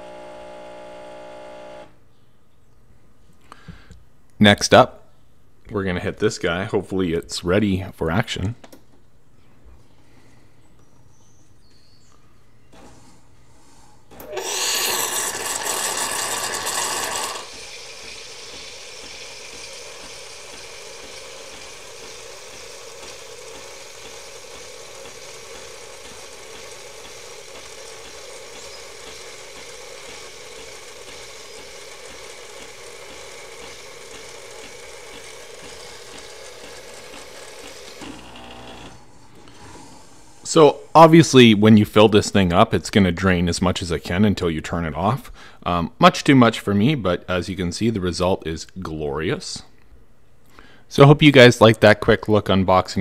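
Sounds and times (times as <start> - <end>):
machine hiss and hum: 0.0 - 1.9, 12.8 - 41.1
milk frother rushing: 14.1 - 40.4
milk streaming into glass: 14.3 - 39.0.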